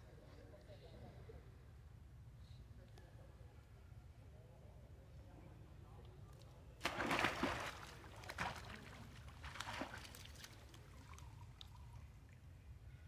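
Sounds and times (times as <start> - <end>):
monkey splashing into water: 6.8 - 11.6
water sloshing: 6.8 - 11.9.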